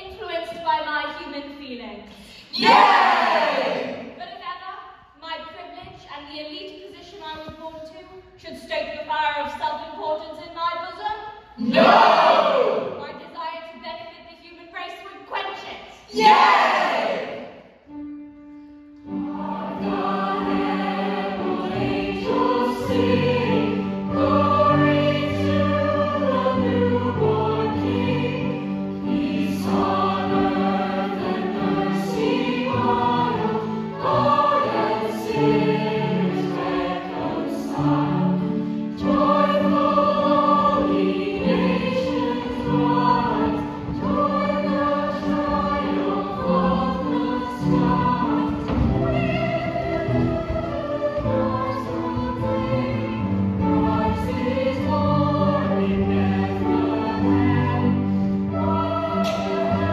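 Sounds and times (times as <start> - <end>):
mixed chorus singing: 2.5 - 4.1, 11.6 - 13.0, 16.1 - 17.6, 19.2 - 59.9.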